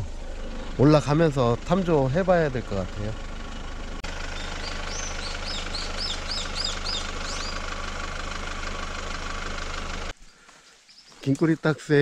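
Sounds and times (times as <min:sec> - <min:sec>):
car engine idling: 0:00.0 - 0:10.2
bird singing high notes: 0:04.3 - 0:07.7.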